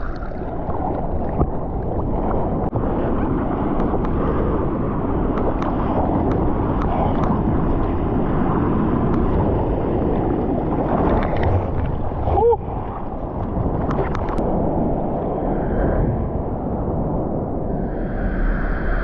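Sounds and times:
seawater sloshing and splashing: 0.0s - 14.4s
water gurgle: 0.0s - 16.4s.

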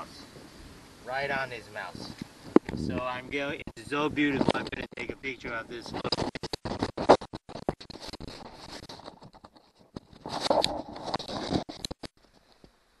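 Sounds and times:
gear rustling and scraping: 4.2s - 12.7s.

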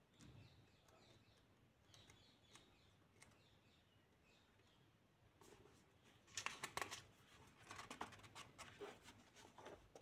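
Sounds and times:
book pages rustling: 5.4s - 10.0s.

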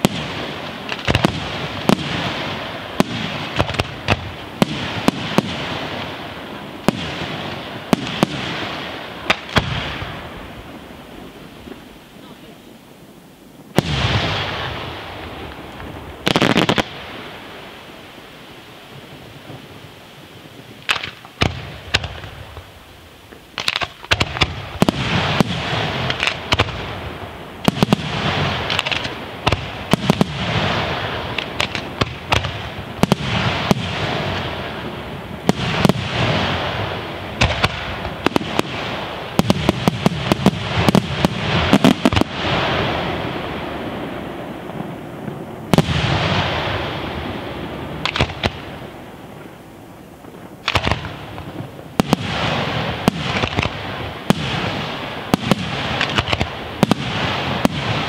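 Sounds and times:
firework crackle: 0.0s - 58.0s
firework shells bursting: 27.6s - 43.2s, 48.0s - 49.6s, 50.3s - 58.0s.

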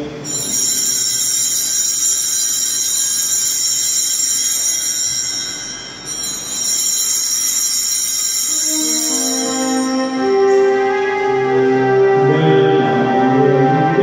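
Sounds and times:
small bells jingling: 0.2s - 10.8s.

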